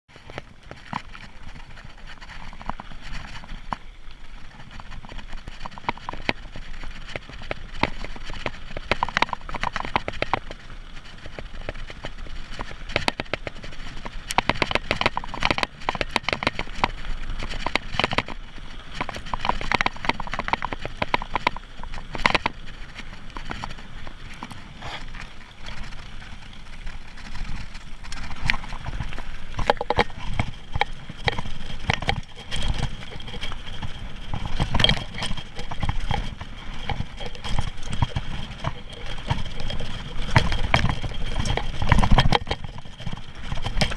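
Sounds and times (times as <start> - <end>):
bike rattling over rough ground: 0.1 - 43.9
tyres crunching on stones: 0.1 - 43.9.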